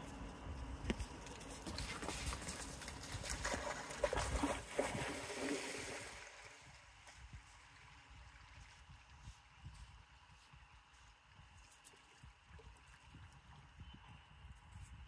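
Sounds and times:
water splashing and trickling: 0:01.1 - 0:09.8, 0:11.2 - 0:13.8.

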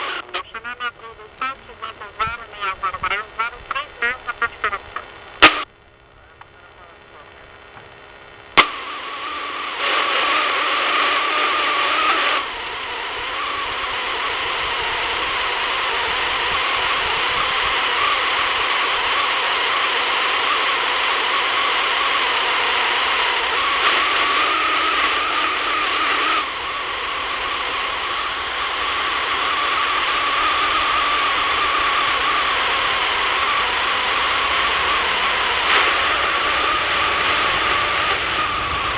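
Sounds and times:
radio squelch click: 0:00.0 - 0:08.9
radio static hiss: 0:00.0 - 0:38.9.

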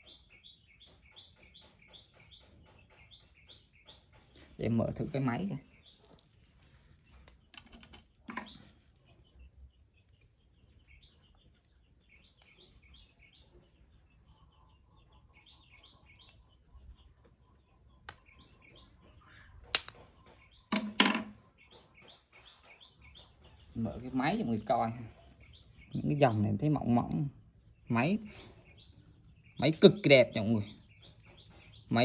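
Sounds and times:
small birds chirping: 0:00.0 - 0:32.0
sharp clicks and knocks: 0:19.6 - 0:21.4.

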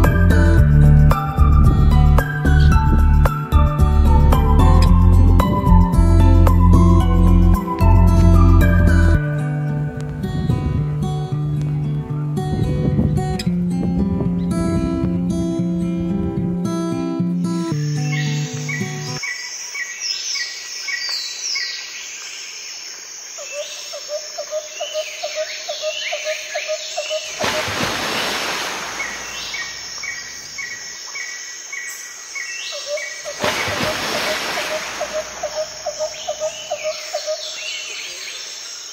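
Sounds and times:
birds chirping and whistling: 0:17.7 - 0:21.8, 0:28.9 - 0:38.8
high insect drone: 0:17.8 - 0:38.9.

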